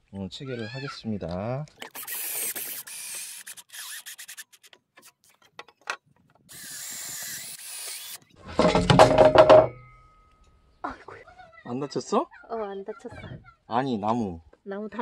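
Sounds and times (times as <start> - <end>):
cordless drill driving screw: 1.8 - 5.1, 6.5 - 8.3.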